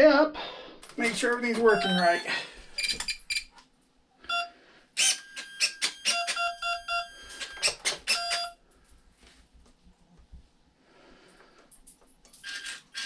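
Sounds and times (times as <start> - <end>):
short electronic beeps: 1.6 - 3.5, 4.3 - 8.6.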